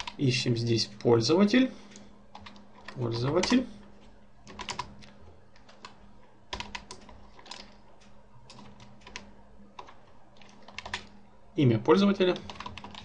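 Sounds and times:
keyboard keys clicking: 0:00.0 - 0:00.2, 0:01.9 - 0:03.6, 0:04.4 - 0:11.2, 0:12.3 - 0:13.0
faint steady low hum: 0:00.0 - 0:13.0.

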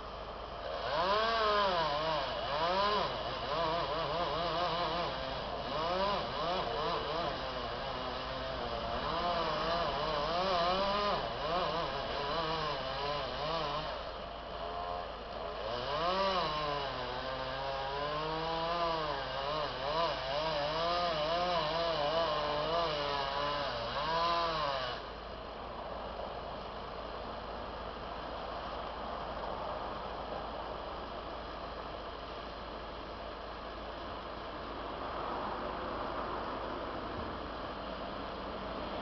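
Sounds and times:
chainsaw engine revving: 0:00.6 - 0:25.1.

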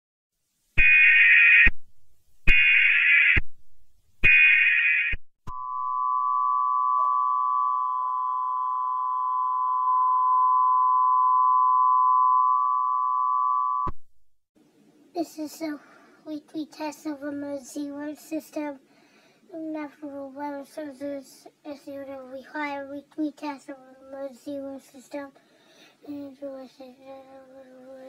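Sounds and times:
two-tone attention signal: 0:05.5 - 0:13.9.

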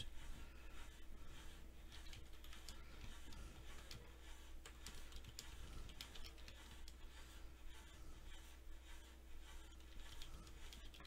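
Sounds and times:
keyboard typing: 0:04.6 - 0:06.5.

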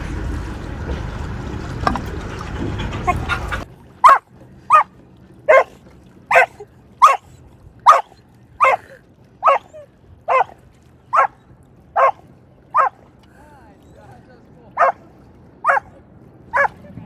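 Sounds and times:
dog barking: 0:04.0 - 0:04.9, 0:05.5 - 0:07.3, 0:07.9 - 0:09.7, 0:10.3 - 0:11.4, 0:12.0 - 0:12.2, 0:12.8 - 0:13.0, 0:14.8 - 0:15.0, 0:15.6 - 0:15.9, 0:16.5 - 0:16.8.

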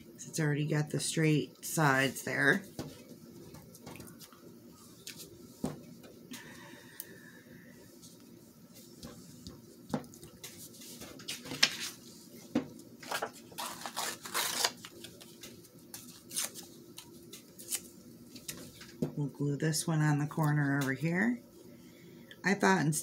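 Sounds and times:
paper scraps rustling: 0:10.6 - 0:12.0, 0:13.0 - 0:16.7.

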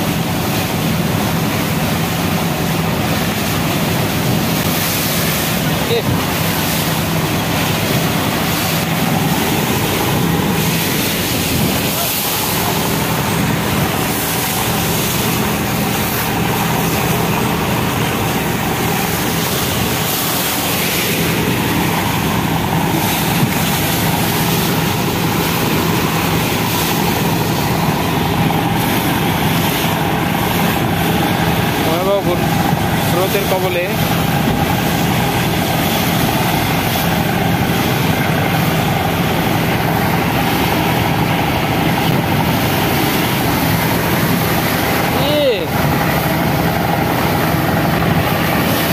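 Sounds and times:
boat engine droning: 0:00.0 - 0:48.9
river water rushing along hull: 0:00.0 - 0:48.9
wind buffeting microphone: 0:06.2 - 0:33.1.

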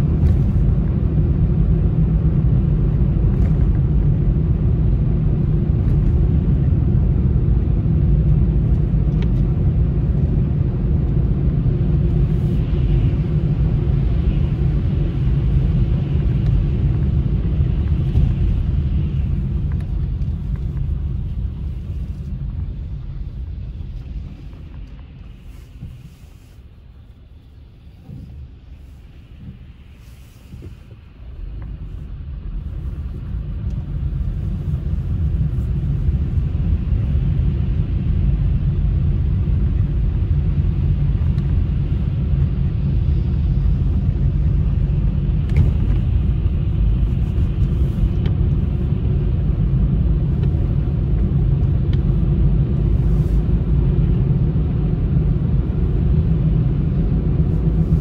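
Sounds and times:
car engine and road rumble: 0:00.0 - 0:58.0.

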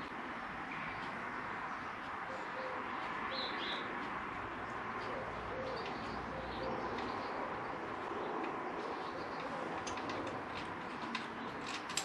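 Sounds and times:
birds cooing: 0:02.3 - 0:03.9, 0:05.0 - 0:10.4.

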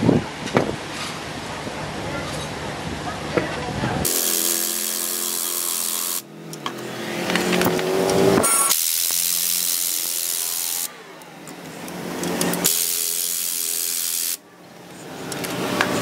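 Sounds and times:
impact wrench running: 0:04.0 - 0:10.9, 0:11.5 - 0:14.4.

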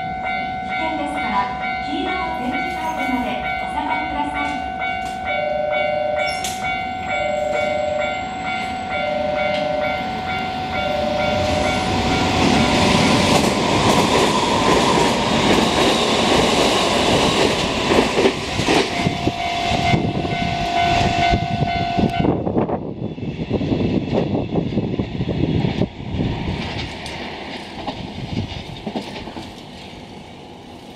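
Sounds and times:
train roaring past: 0:00.0 - 0:30.9
steady tones: 0:00.1 - 0:23.6
wheels clacking over rail joints: 0:10.7 - 0:21.4, 0:26.5 - 0:30.0.

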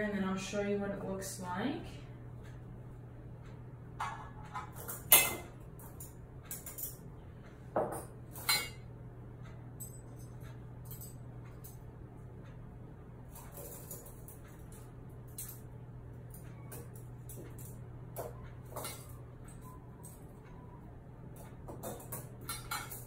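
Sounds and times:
steady low hum: 0:00.0 - 0:23.0
metal instruments clinking: 0:04.0 - 0:07.0, 0:09.8 - 0:11.8, 0:13.3 - 0:15.7, 0:16.3 - 0:20.6, 0:21.4 - 0:23.0.

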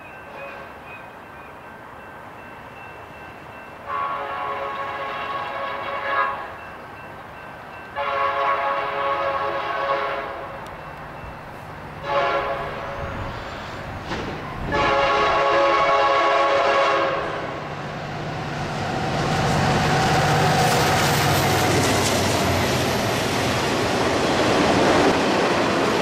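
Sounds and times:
low rumble of train: 0:00.0 - 0:26.0
locomotive air horn blasts: 0:03.8 - 0:06.6, 0:08.0 - 0:10.6, 0:12.0 - 0:13.9, 0:14.6 - 0:17.6.

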